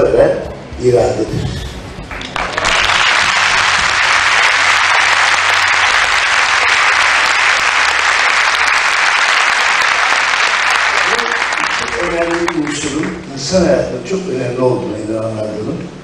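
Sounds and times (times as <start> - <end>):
audience applauding: 2.1 - 13.3.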